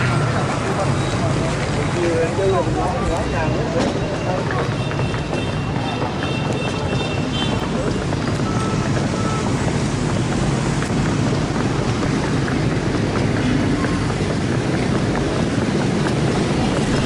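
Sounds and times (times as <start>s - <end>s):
motorbikes passing: 0.0s - 17.0s
street traffic hum: 0.0s - 17.0s
wind buffeting microphone: 4.5s - 17.0s.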